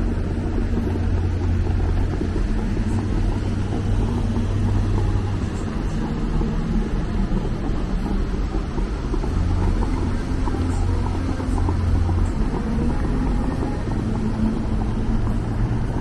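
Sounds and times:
city street traffic rumble: 0:00.0 - 0:16.0
deep hum: 0:00.0 - 0:16.0.

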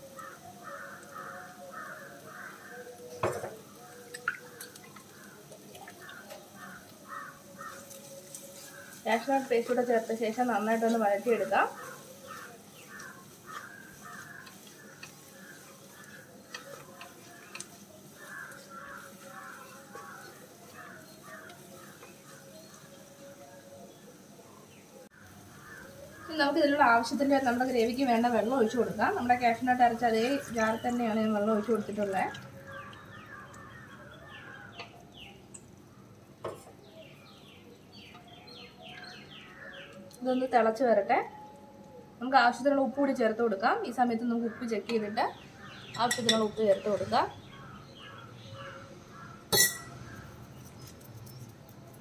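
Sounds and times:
birds chirping: 0:00.0 - 0:52.0
spatula scraping a pan: 0:07.3 - 0:23.2
spatula knocking pan: 0:11.7 - 0:22.5.

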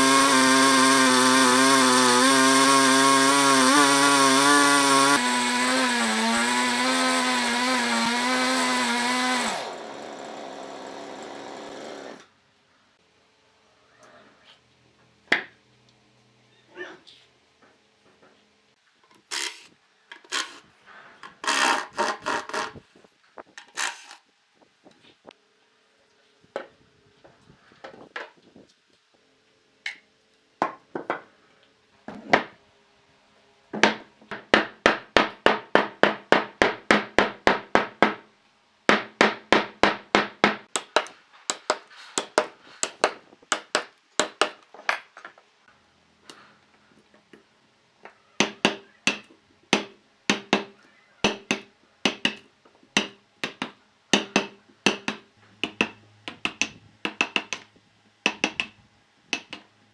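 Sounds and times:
chisel chipping bark: 0:00.0 - 0:09.6, 0:48.4 - 0:52.4, 0:53.0 - 0:57.6, 0:58.3 - 0:59.6
impact driver drilling wood: 0:00.0 - 0:12.3.

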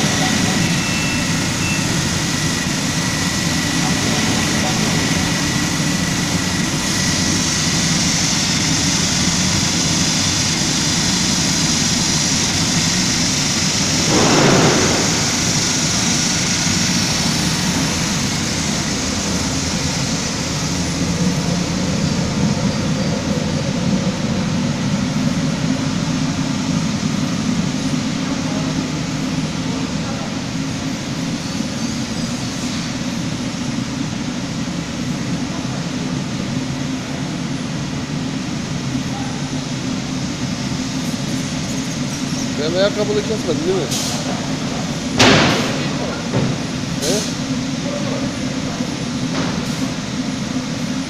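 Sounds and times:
machine humming: 0:00.0 - 0:29.8.

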